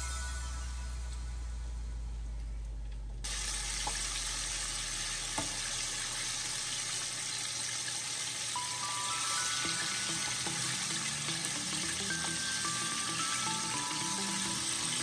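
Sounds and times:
low hum: 0.0s - 6.6s
chicken sizzling in hot oil: 3.3s - 15.0s.

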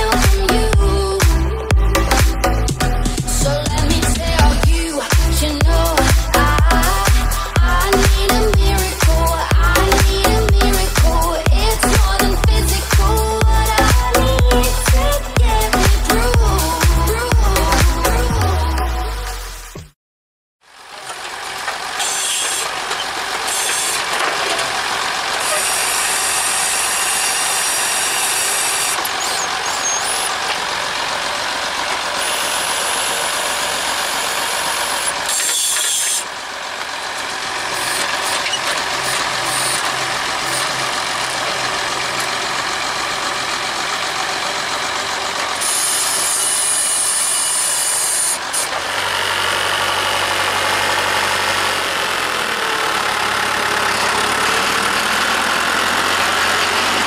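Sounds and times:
tractor engine running: 0.0s - 19.8s, 20.6s - 57.0s
hissy hydraulic mechanical noise: 21.1s - 24.8s, 25.4s - 30.7s, 32.2s - 36.3s.

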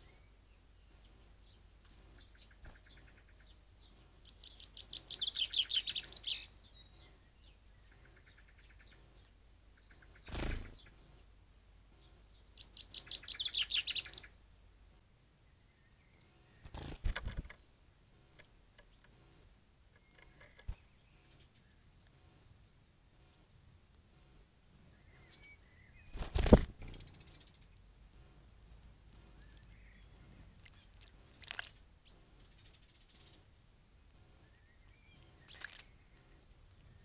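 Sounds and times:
songbird trilling: 4.3s - 9.0s, 12.4s - 14.3s, 26.8s - 33.4s, 34.6s - 37.0s.

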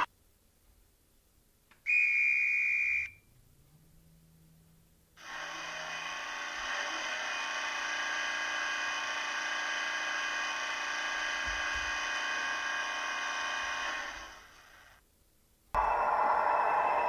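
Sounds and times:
air compressor buzz from small speaker: 5.2s - 15.0s.

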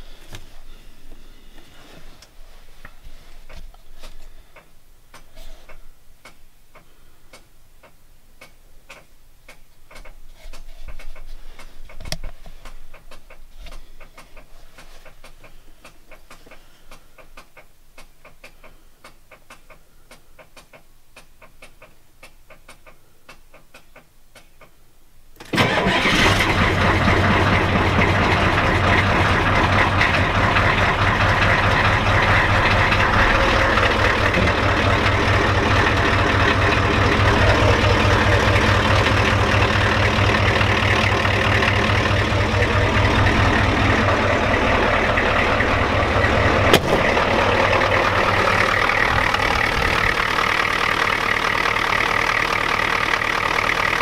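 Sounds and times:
faint clicks: 2.2s - 24.8s
diesel engine running: 25.6s - 54.0s.

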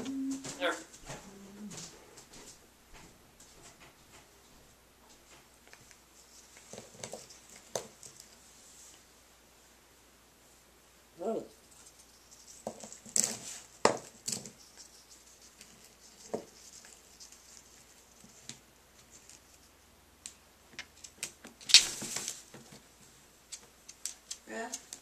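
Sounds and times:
parrot rustling paper: 5.6s - 9.0s, 11.6s - 19.8s, 21.0s - 25.0s.

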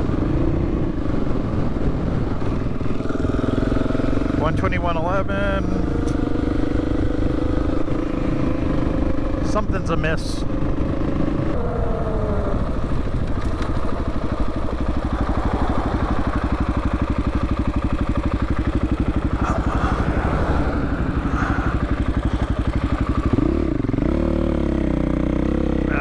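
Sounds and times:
dirt bike engine running: 5.2s - 26.0s.

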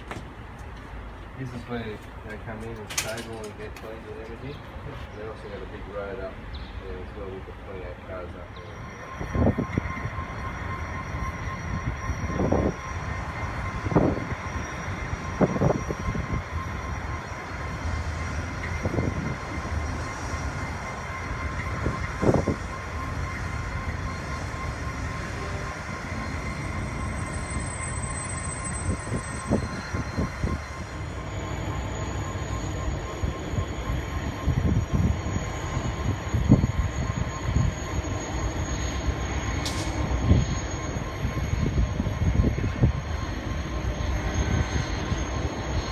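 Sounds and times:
locomotive engine rumbling: 0.0s - 45.9s
thin steady whine: 0.0s - 45.9s
wheels clunking over rail joints: 2.1s - 4.4s.

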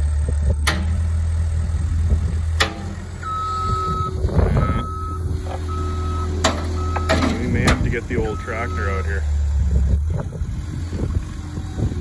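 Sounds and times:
diesel engine running: 0.0s - 12.0s
backup alarm beeping: 3.2s - 9.1s.

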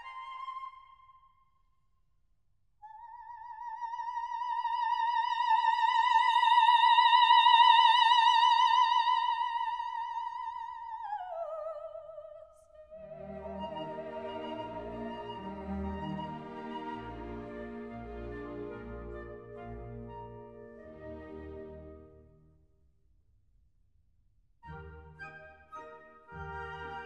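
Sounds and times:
orchestra playing: 13.2s - 22.2s, 24.7s - 27.0s.

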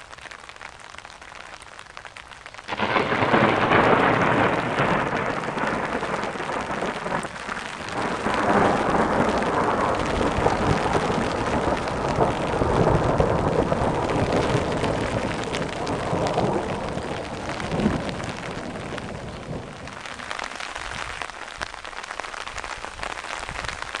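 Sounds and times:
steady rain falling: 0.0s - 24.0s
thunder rumbling: 2.7s - 21.3s.

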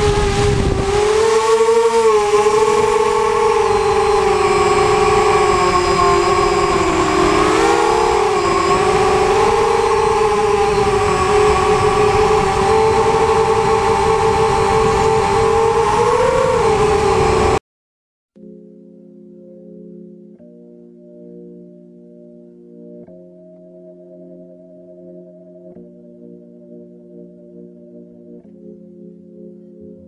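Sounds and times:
quadcopter motors whining: 0.0s - 17.6s.

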